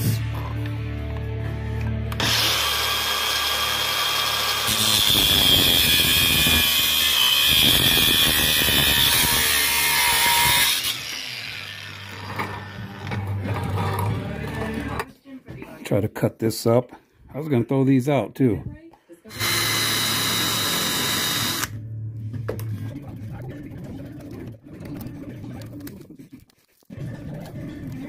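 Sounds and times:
angle grinder cutting steel: 2.2 - 13.2, 19.3 - 21.8.

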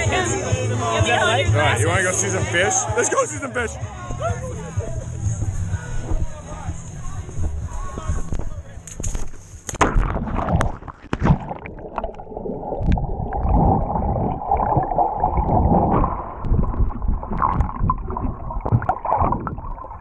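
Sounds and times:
muffled underwater gurgling: 10.0 - 20.0.

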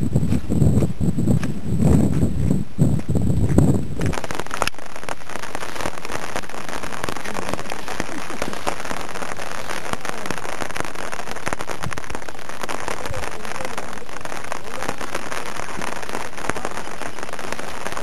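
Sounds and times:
rain pattering on umbrella: 4.0 - 18.0.

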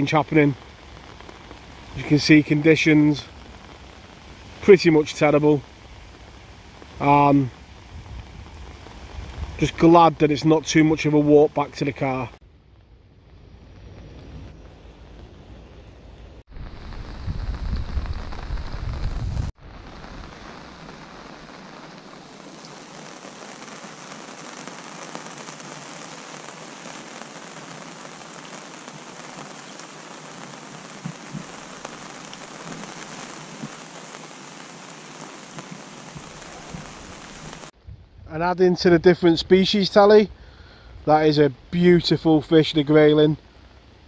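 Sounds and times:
steady rain falling: 0.0 - 37.8, 38.4 - 44.0
wind buffeting microphone: 7.6 - 9.8, 16.5 - 20.2, 37.8 - 39.6.

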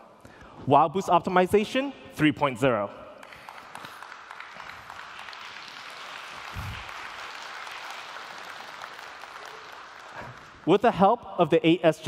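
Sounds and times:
audience applauding: 3.2 - 10.7.

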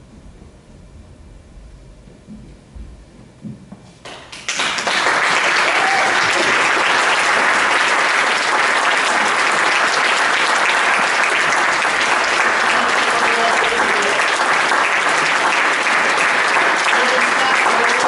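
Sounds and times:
audience applause: 4.1 - 18.0.

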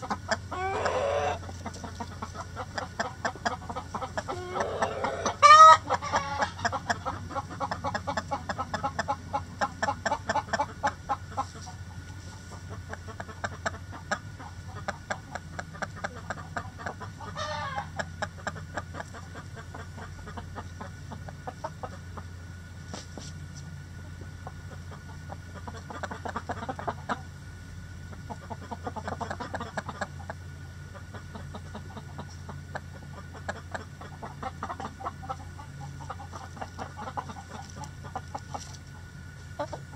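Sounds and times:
chicken squawk: 0.0 - 11.8, 12.5 - 22.1
chickens clucking: 0.0 - 39.9.

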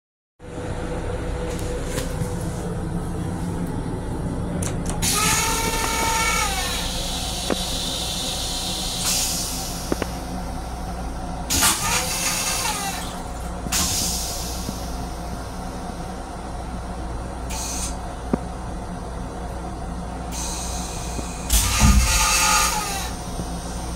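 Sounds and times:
train rumbling: 0.4 - 23.9
whining pump: 4.6 - 15.9, 17.4 - 18.1, 20.3 - 23.9
toilet flushing with hissing air: 5.0 - 10.9, 11.5 - 15.6, 17.5 - 18.0, 20.3 - 23.9.

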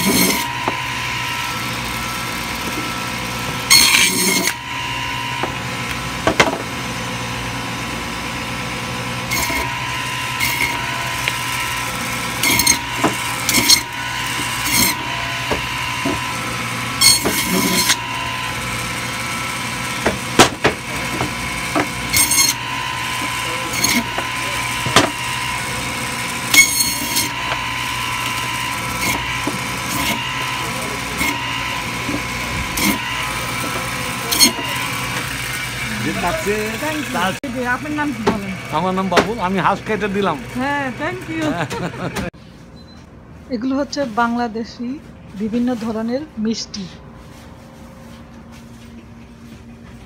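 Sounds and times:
saw blade rasping through bone: 0.0 - 0.6, 17.0 - 18.0, 20.0 - 25.4, 26.4 - 35.3
band saw humming: 0.0 - 42.8.

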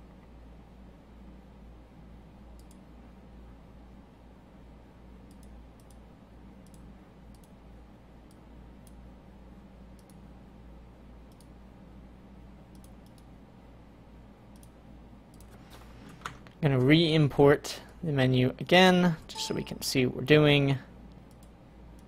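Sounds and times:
faint low hum: 0.0 - 22.0
computer mouse clicking: 2.6 - 2.8, 5.2 - 6.0, 6.6 - 7.6, 9.9 - 10.2, 11.3 - 11.6, 12.7 - 13.3, 14.5 - 15.6, 21.1 - 22.0.

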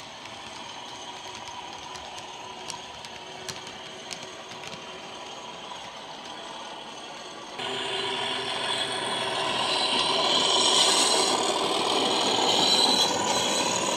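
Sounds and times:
model train running rumble: 0.0 - 13.9.

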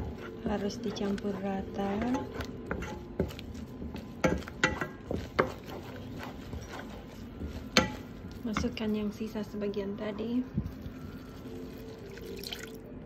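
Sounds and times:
wooden spoon scraping saucepan: 0.0 - 9.4.

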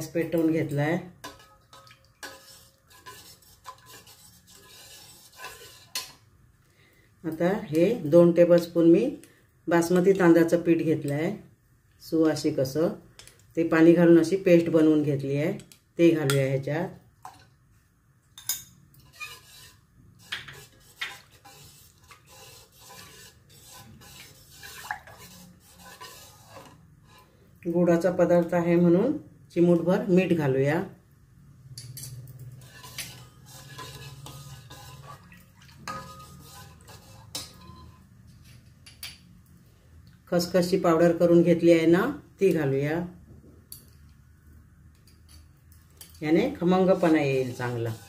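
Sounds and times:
spoon scraping a steel pot: 0.2 - 6.2, 18.4 - 27.4, 31.8 - 38.7, 46.6 - 48.0
spoon clinking on pot: 0.4 - 4.1, 35.9 - 38.1.

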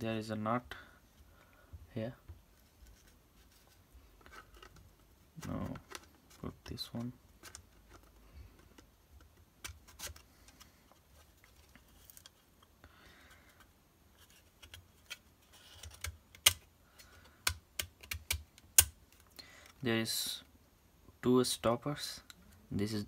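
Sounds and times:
plastic rubbing: 2.2 - 12.6, 13.4 - 19.3
plastic case parts clicking: 14.6 - 19.8.

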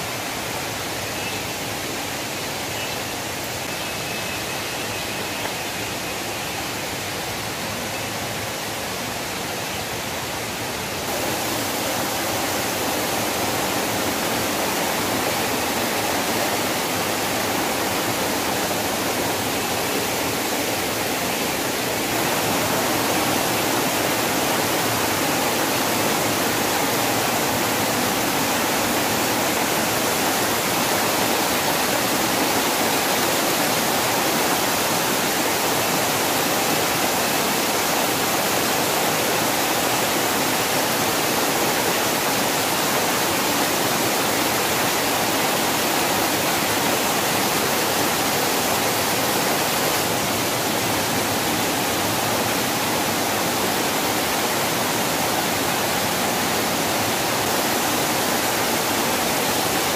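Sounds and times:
waterfall splashing over rocks: 0.0 - 59.9.

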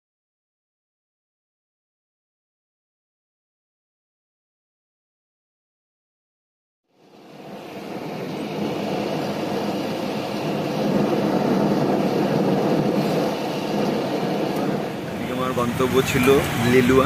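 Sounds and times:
car road and engine noise: 6.9 - 17.0.

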